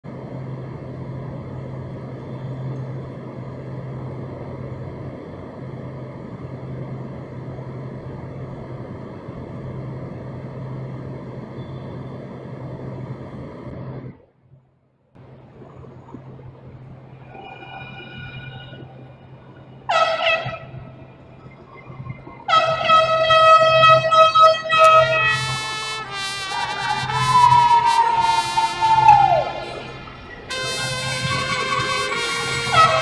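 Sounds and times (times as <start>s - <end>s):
low mechanical drone: 0.0s - 33.0s
rushing noise: 15.2s - 33.0s.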